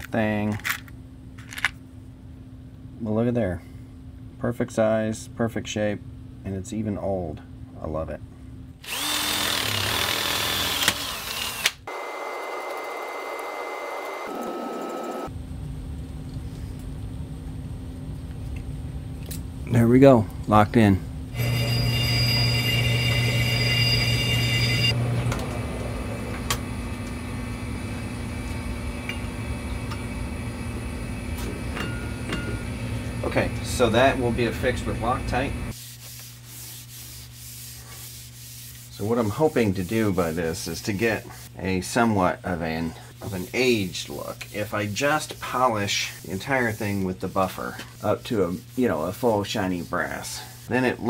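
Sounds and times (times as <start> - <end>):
cordless drill drilling into brass: 8.8 - 15.3
steady low hum: 15.1 - 51.0
metal lathe running: 21.4 - 25.1.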